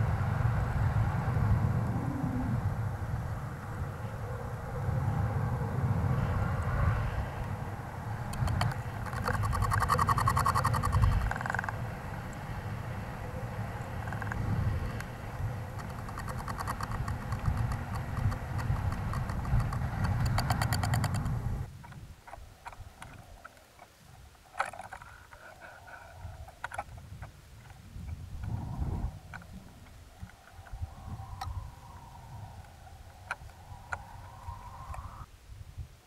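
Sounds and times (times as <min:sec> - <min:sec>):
wind buffeting camera: 0:00.0 - 0:36.0
light clicks and taps: 0:08.3 - 0:12.4, 0:15.8 - 0:23.9.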